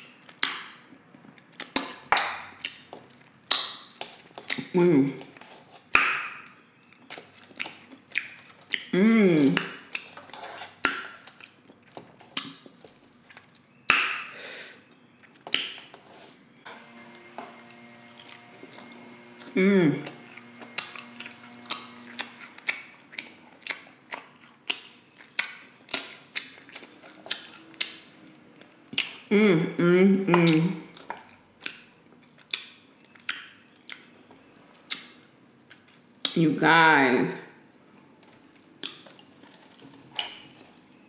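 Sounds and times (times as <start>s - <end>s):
chewing with lip smacks: 0.0s - 13.9s, 14.9s - 16.6s, 18.1s - 29.3s, 30.5s - 36.4s, 37.5s - 41.0s
person humming: 9.0s - 9.6s, 19.5s - 20.2s, 29.3s - 30.8s.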